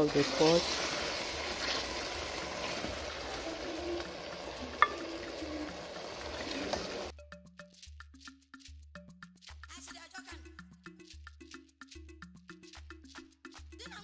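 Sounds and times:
stew sizzling in pot: 0.0 - 7.1
spoon stirring and scooping: 0.1 - 7.1
light percussive music: 4.0 - 14.0
spoon clink: 4.8 - 5.6.

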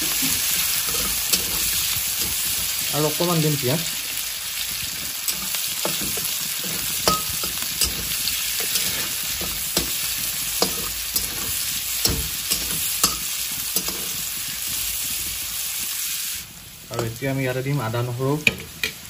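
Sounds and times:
onions sizzling in hot oil: 0.0 - 19.0
metal spatula scraping pan: 0.5 - 2.6, 5.3 - 14.2.

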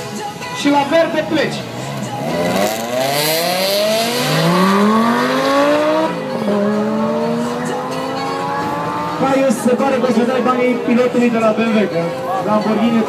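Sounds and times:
cars accelerating hard: 1.6 - 11.2.

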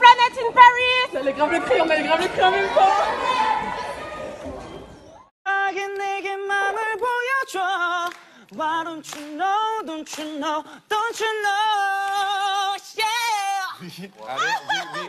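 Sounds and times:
man singing a cappella: 5.5 - 13.8.

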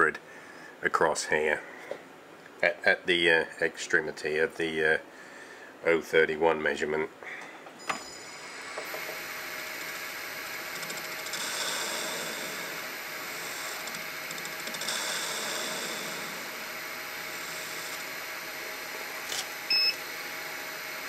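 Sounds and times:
lathe motor whine: 8.2 - 21.0
lathe tool cutting metal: 9.0 - 19.2.

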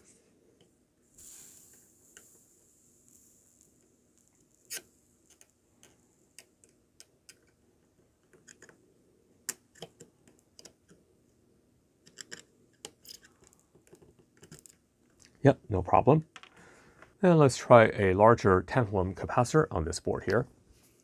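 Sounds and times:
faint small clicks and ticks: 3.6 - 7.6, 9.5 - 11.0.

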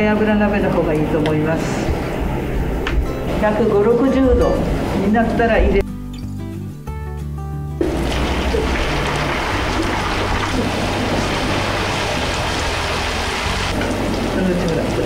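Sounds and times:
noodles sizzling in hot oil: 7.9 - 15.0.

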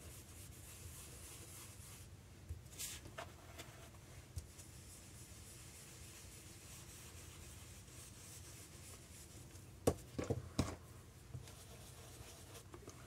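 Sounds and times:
brush scratching on paper: 0.0 - 2.1, 4.6 - 9.5, 11.4 - 13.0.

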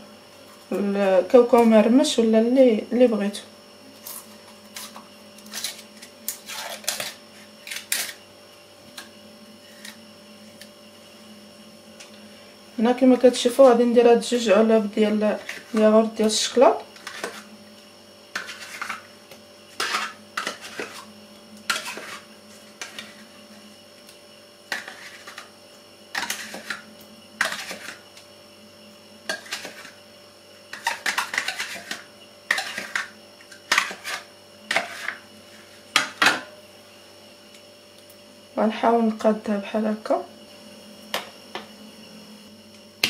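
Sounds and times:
spoon scraping plastic cups: 4.1 - 8.2, 15.4 - 17.5, 18.4 - 19.1, 19.7 - 21.1, 21.7 - 23.3, 24.7 - 25.5, 26.2 - 26.8, 27.4 - 28.0, 29.3 - 30.0, 30.7 - 35.2.

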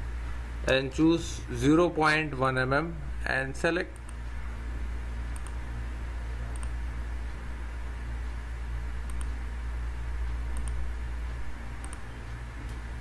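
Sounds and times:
steady low hum: 0.0 - 13.0
computer mouse clicking: 5.3 - 5.6, 6.5 - 6.8, 9.0 - 9.4, 10.5 - 10.8, 11.8 - 12.8.

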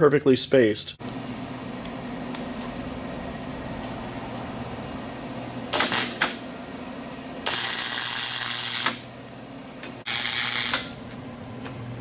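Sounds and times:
welder arc crackling: 5.8 - 6.4, 7.5 - 9.1, 10.0 - 11.0.

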